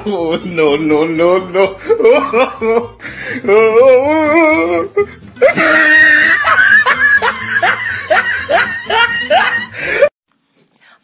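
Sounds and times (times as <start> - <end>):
person wailing: 0.0 - 10.1
person screaming: 3.5 - 7.0.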